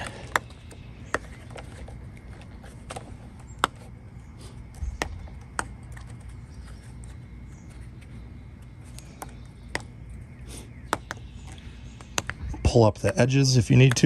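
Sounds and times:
low steady rumble: 0:00.0 - 0:14.0.

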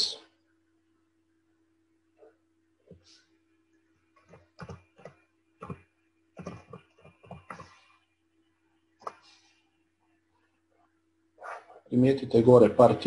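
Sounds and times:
faint electrical hum: 0:00.0 - 0:13.0
computer keyboard typing: 0:04.2 - 0:05.8, 0:06.4 - 0:07.8.

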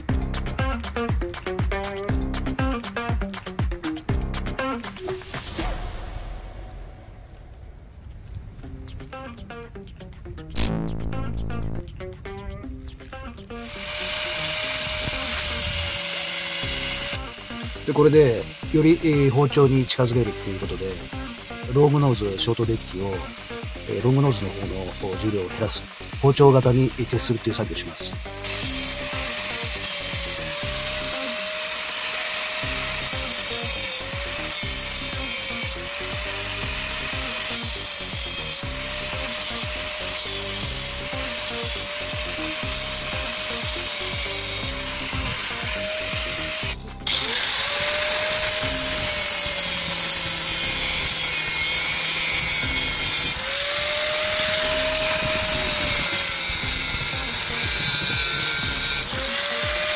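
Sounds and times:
power tool grinding metal: 0:12.9 - 0:59.9.

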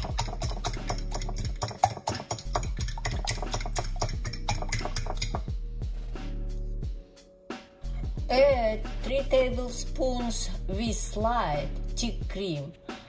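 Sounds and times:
whisk clicking against glass bowl: 0:00.0 - 0:05.4
background music: 0:00.0 - 0:13.0.

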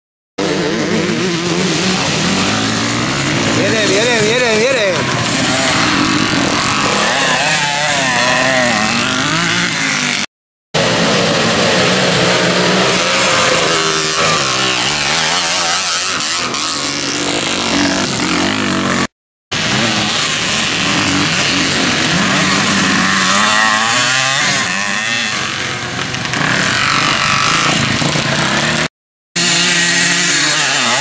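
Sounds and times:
motocross motorcycle engines revving: 0:00.4 - 0:31.0.

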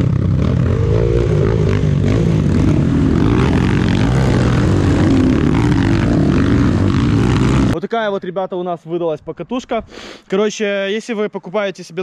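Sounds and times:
motorcycle engine revving: 0:00.0 - 0:07.8.

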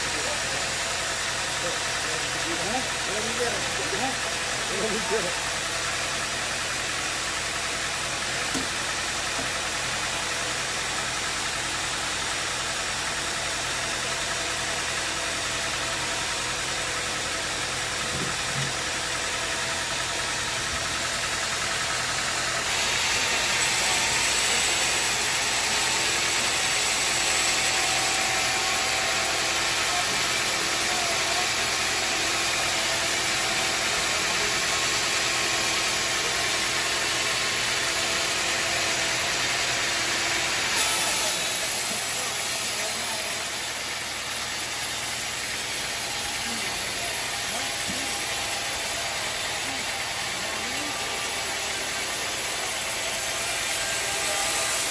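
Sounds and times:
band saw cutting wood: 0:07.0 - 0:10.5, 0:22.4 - 0:54.9.

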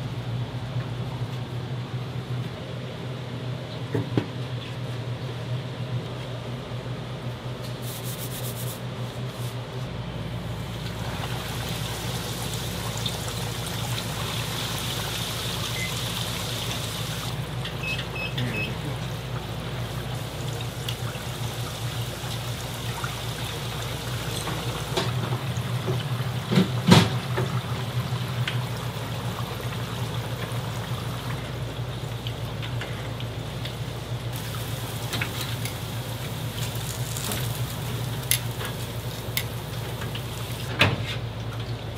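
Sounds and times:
low equipment hum: 0:00.0 - 0:41.9
oil bubbling and hissing: 0:10.2 - 0:41.9.

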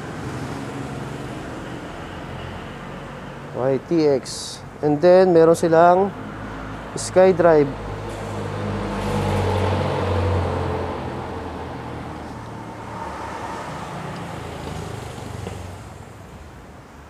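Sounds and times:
vehicle engine humming: 0:06.5 - 0:16.6.

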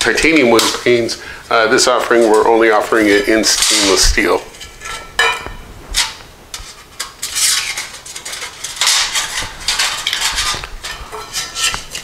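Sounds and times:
metal cookware clinking and rattling: 0:03.4 - 0:06.1, 0:07.0 - 0:12.0.

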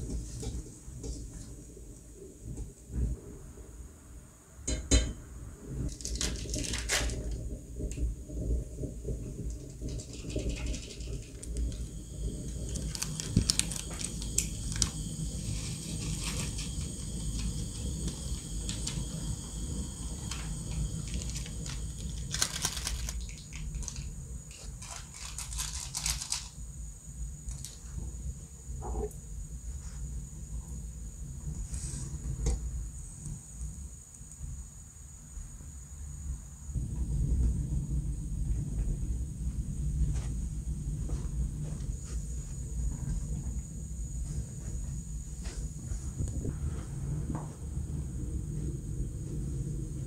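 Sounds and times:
plastic sachets crinkling: 0:12.6 - 0:17.5, 0:20.3 - 0:26.6.

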